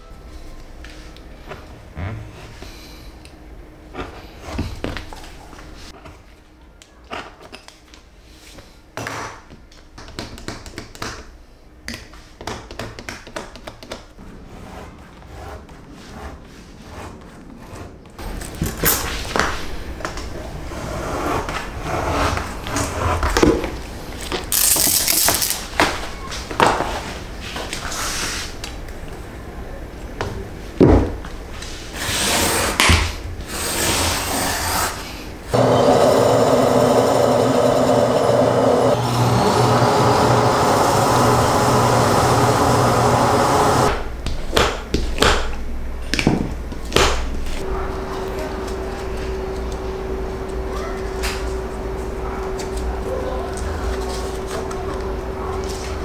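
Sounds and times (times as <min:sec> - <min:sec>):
leather skiving machine running: 0:35.5 - 0:44.0.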